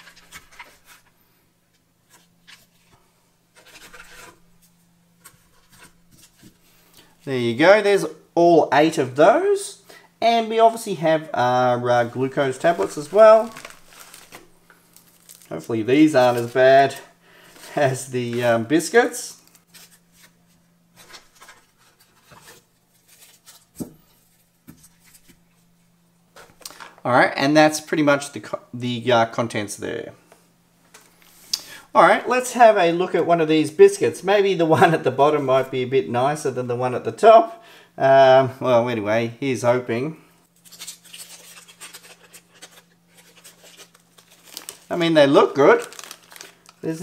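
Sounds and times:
paper rustling: 0.0 - 1.2, 3.6 - 6.6, 12.0 - 18.6, 19.3 - 25.4, 40.6 - 47.0
biscuits scratching on paper: 3.6 - 4.4, 40.6 - 44.1
foil packet crinkling: 11.9 - 20.4, 40.6 - 47.0.

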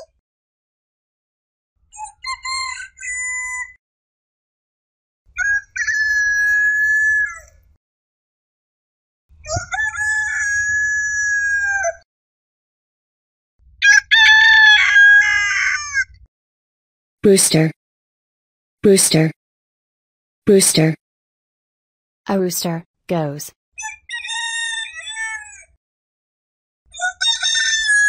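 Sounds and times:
rooster crowing: 13.8 - 15.9.

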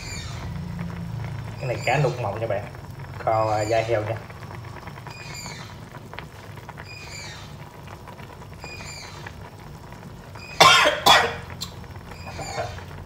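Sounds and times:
sauce bubbling in a pan: 0.0 - 13.0
faint high chirp: 4.7 - 6.0, 6.8 - 7.6, 12.1 - 12.8
person coughing: 10.6 - 11.4.

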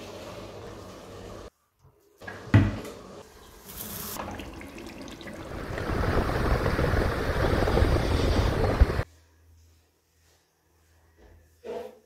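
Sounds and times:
tap water running into sink: 3.7 - 5.9.

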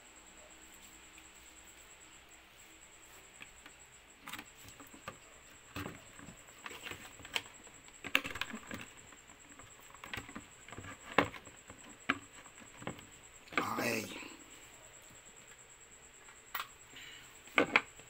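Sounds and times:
cables being handled: 3.0 - 14.0.

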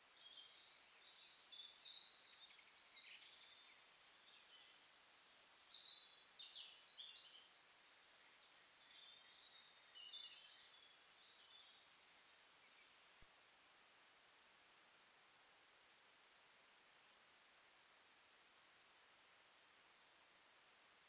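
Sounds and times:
songbirds chirping and trilling: 0.0 - 13.3
steady hiss: 0.0 - 21.0.

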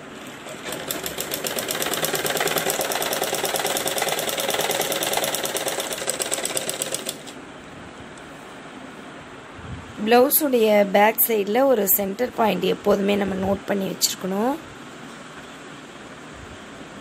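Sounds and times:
sewing machine stitching: 0.1 - 7.4.

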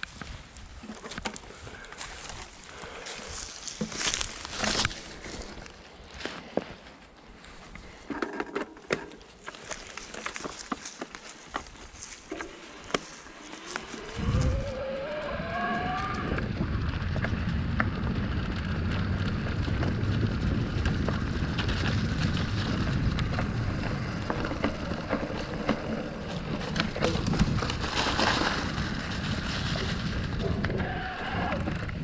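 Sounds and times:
bike clicks and rattles: 0.0 - 30.8
tyres rolling over dirt: 0.0 - 32.0
electric motor whine: 13.2 - 16.7
wind on microphone: 13.2 - 32.0.

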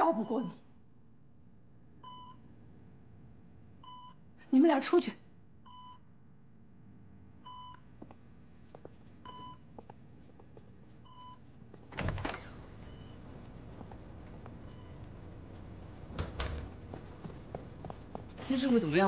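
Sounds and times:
patient monitor beeping: 2.0 - 2.5, 9.2 - 9.8, 11.0 - 11.6, 12.6 - 17.9.

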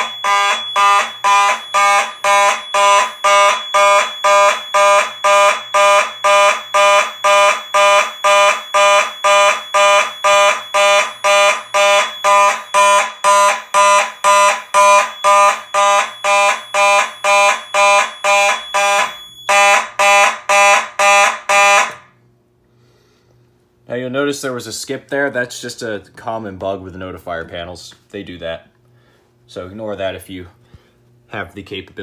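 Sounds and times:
fire alarm horn pulses: 0.0 - 22.2.

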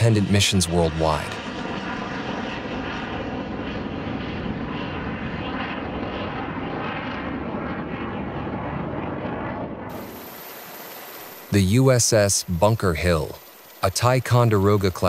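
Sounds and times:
rocket motor roar: 0.0 - 11.7.

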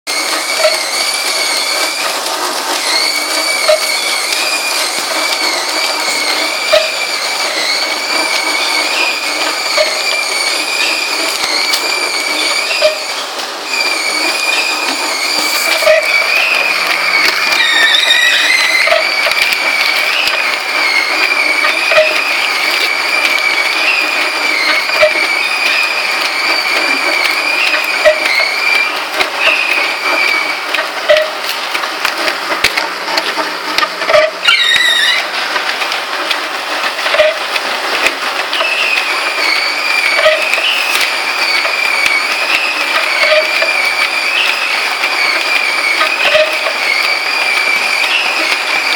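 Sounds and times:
wavering high whine: 0.1 - 36.2
printer and conveyor running: 0.1 - 48.9.

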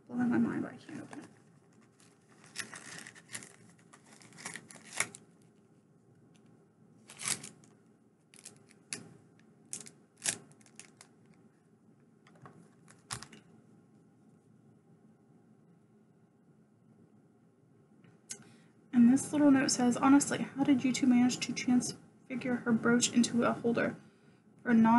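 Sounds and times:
packaging bag crinkling: 1.0 - 5.4, 7.0 - 9.0, 9.7 - 11.4.

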